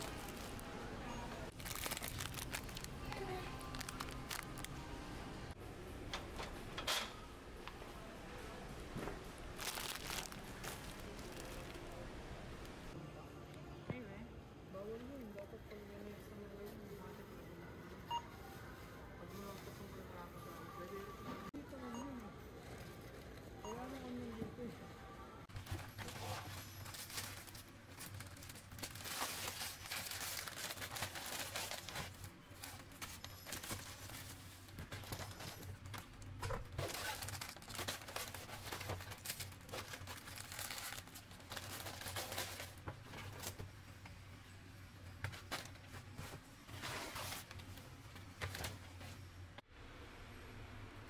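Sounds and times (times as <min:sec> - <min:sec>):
plastic bags crinkling: 0:00.0 - 0:00.7, 0:01.5 - 0:04.8, 0:09.5 - 0:12.0, 0:25.6 - 0:43.6.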